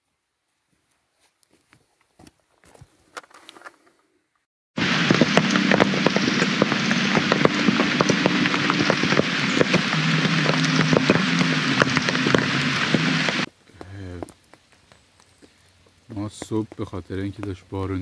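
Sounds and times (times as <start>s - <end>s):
heavy rain on a tarp: 4.8s - 15.0s.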